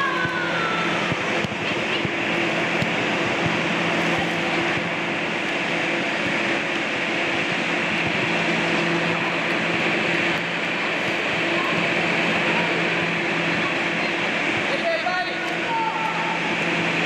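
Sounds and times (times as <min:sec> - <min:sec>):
blower fan drone: 0:00.0 - 0:17.0.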